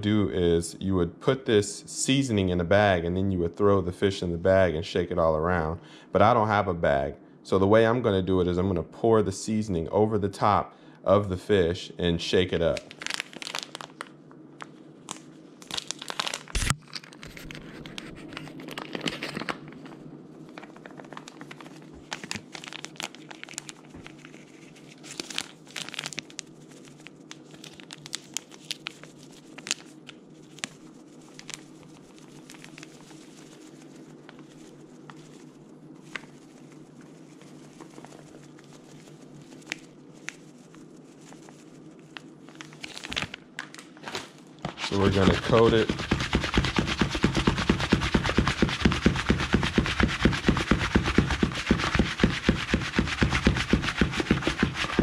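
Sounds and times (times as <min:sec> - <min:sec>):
packet crinkling and tearing: 0:12.6 - 0:14.2, 0:15.0 - 0:55.0
dry coating pouring: 0:44.7 - 0:46.7.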